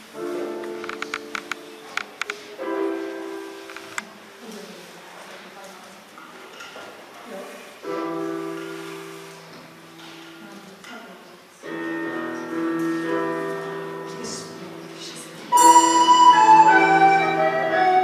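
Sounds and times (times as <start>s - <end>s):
bright high melody: 15.5s - 18.0s.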